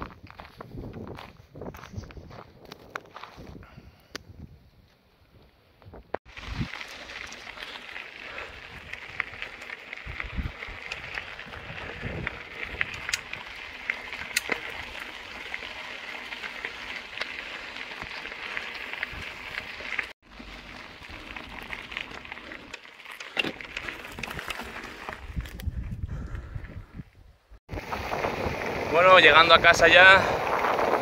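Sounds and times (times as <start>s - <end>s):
wind gusts on microphone: 0.0s - 4.8s, 8.5s - 15.0s, 24.1s - 31.0s
bike tyres crunching on gravel: 6.2s - 31.0s.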